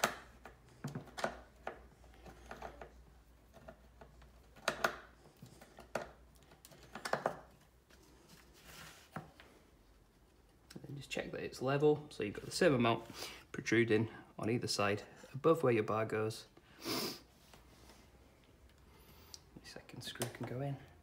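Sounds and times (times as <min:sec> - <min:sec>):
wooden parts clicking and knocking: 0:00.0 - 0:07.7.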